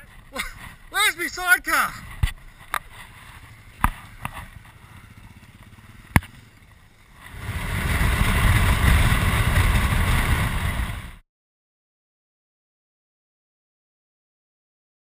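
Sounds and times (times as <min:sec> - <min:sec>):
motorcycle engine: 0:00.0 - 0:11.2
low rumble: 0:02.0 - 0:11.2
wind buffeting on camera: 0:07.1 - 0:11.2.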